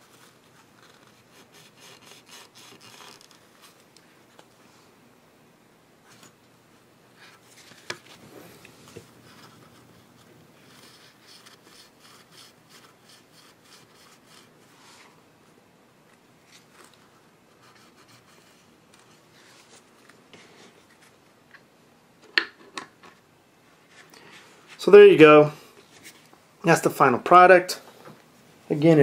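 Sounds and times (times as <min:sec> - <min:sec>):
handling rubbing and scraping: 0:07.3 - 0:15.2.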